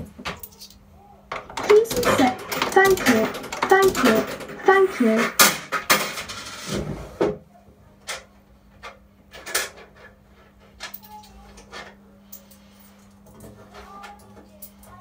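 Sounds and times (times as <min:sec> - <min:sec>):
low electrical hum: 0:00.0 - 0:15.0
coins clattering in coin mechanism: 0:01.4 - 0:06.7.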